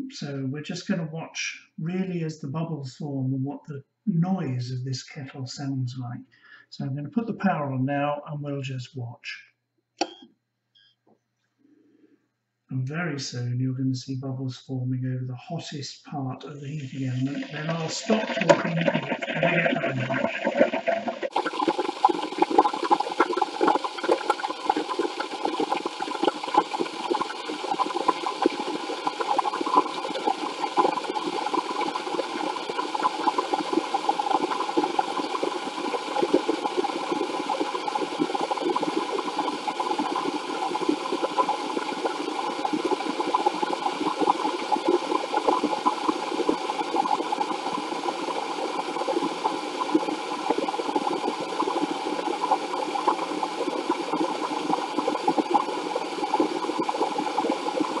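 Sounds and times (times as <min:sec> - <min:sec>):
kettle hissing and crackling: 0:16.2 - 0:58.0.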